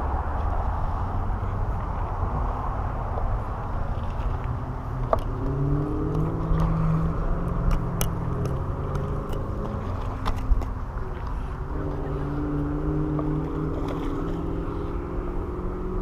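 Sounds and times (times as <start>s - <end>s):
engine hum: 0.0s - 16.0s
rush of passing cars: 0.0s - 16.0s.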